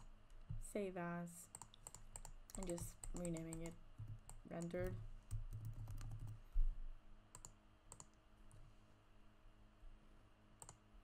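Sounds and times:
keyboard keystrokes clicking: 1.6s - 6.4s.

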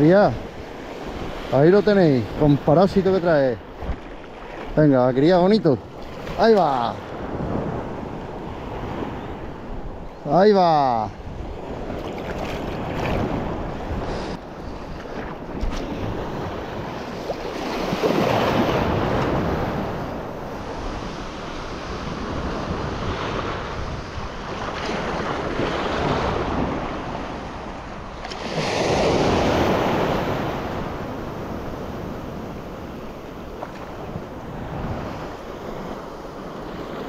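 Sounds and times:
wind on microphone: 0.0s - 10.3s, 11.0s - 37.0s
surf breaking on beach: 10.4s - 27.6s, 28.2s - 37.0s.

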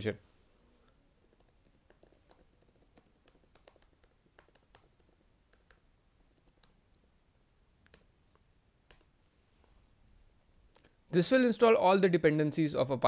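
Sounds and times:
faint keyboard typing: 1.1s - 7.1s, 7.8s - 9.4s.

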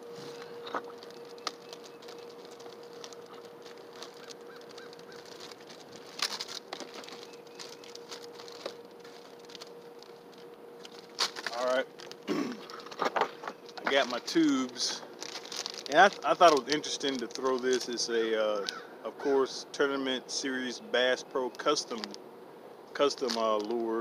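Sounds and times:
faint steady hum: 0.0s - 24.0s
fishing tackle clicks and rustles: 0.2s - 18.0s.

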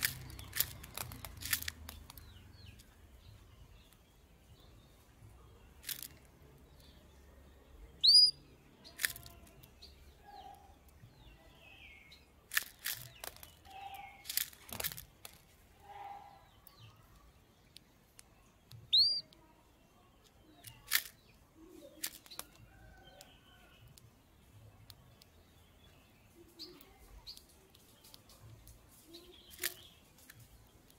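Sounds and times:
sharp clicks: 0.0s - 3.0s
canary chirp calls: 7.9s - 12.4s, 13.0s - 14.4s, 18.5s - 19.4s.

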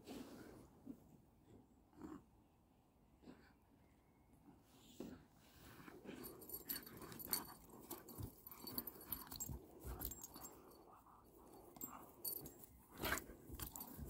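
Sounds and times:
dogs vocalizing while playing: 6.0s - 14.0s.

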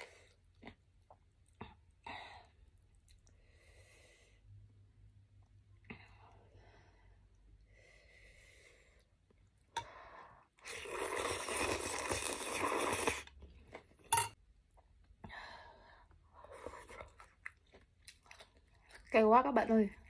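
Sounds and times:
noodles slurped loudly: 10.6s - 13.4s
chewing and mouth noise: 16.5s - 20.0s.

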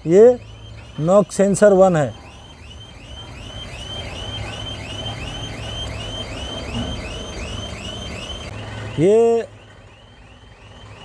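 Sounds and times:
high chirping note: 0.0s - 9.2s
diesel engine idling: 0.0s - 11.0s.

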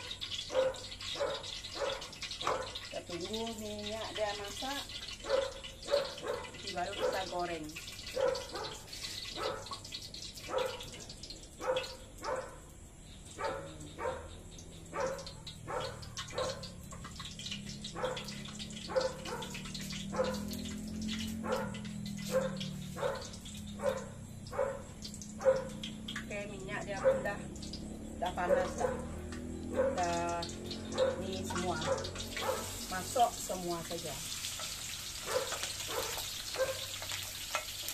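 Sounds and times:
dog barking: 0.0s - 2.8s, 5.2s - 7.4s, 8.1s - 9.8s, 10.5s - 11.0s, 11.6s - 12.7s, 13.4s - 16.8s, 17.9s - 20.6s, 21.2s - 25.8s, 27.0s - 27.5s, 28.4s - 30.2s, 30.9s - 32.8s, 35.2s - 37.0s.

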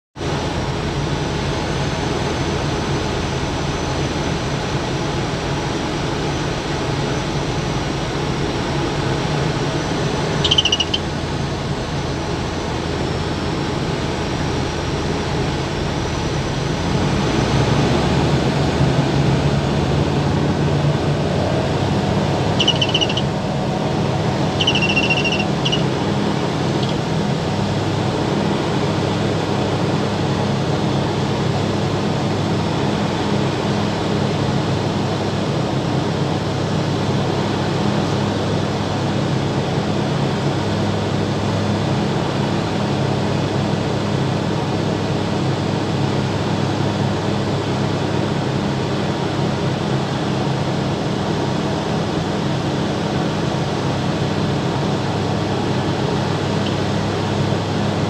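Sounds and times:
light aircraft engine drone: 0.2s - 58.0s
short high beeps: 10.4s - 11.0s, 22.6s - 23.3s, 24.5s - 25.9s.

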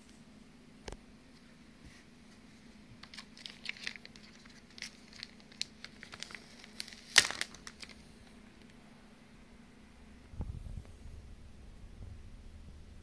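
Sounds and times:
plastic packaging crinkling: 3.0s - 8.7s.

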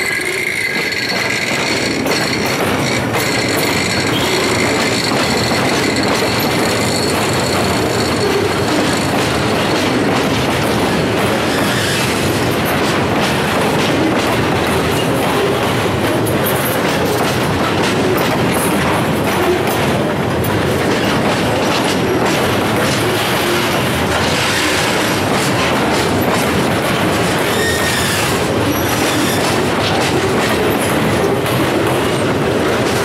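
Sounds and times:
high wheel squeal: 0.0s - 9.5s, 27.4s - 29.4s
train wheels clattering on track: 0.0s - 33.0s.

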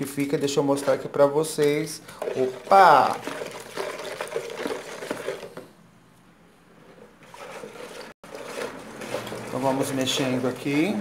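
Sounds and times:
liquid sloshing in bowl: 0.2s - 5.8s, 6.7s - 10.8s
spoon scraping and knocking bowl: 2.2s - 5.7s, 6.9s - 10.3s.

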